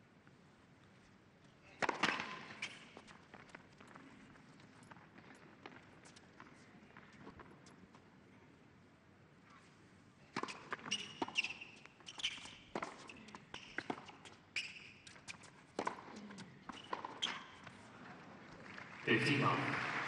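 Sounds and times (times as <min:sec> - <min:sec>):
tennis ball bouncing: 0:01.8 - 0:02.8, 0:15.0 - 0:17.4
shoes squeaking on court: 0:01.8 - 0:08.0, 0:10.3 - 0:17.9.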